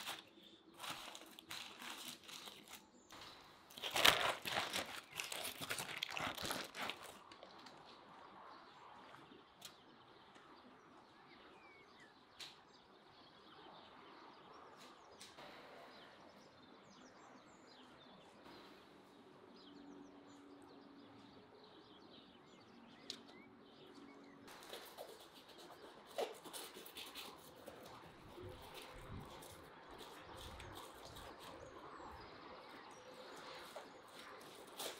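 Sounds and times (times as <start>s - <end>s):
baking paper crinkling: 0.0s - 3.0s, 3.7s - 7.8s
soft bird chirps: 7.0s - 34.9s.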